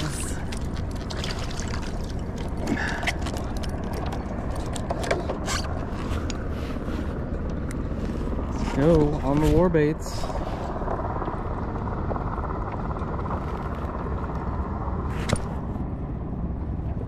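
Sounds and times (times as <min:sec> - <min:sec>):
fish splashing: 0:00.0 - 0:06.3
low wind rumble on microphone: 0:00.0 - 0:17.0.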